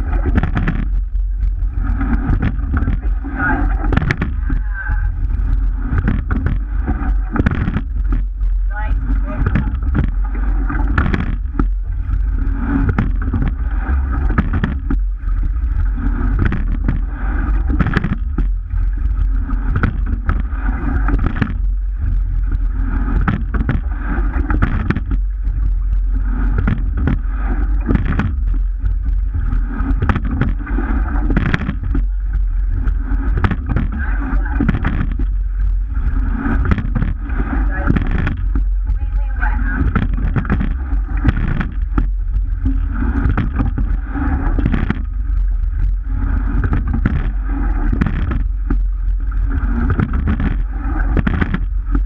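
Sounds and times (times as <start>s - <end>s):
knocks and clicks from oars: 0.0s - 52.0s
water rushing along hull: 0.0s - 52.0s
wind buffeting microphone: 0.0s - 52.0s.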